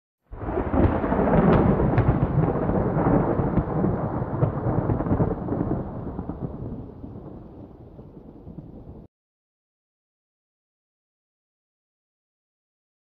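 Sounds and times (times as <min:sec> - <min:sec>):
thunder rumbling: 0:00.4 - 0:09.1.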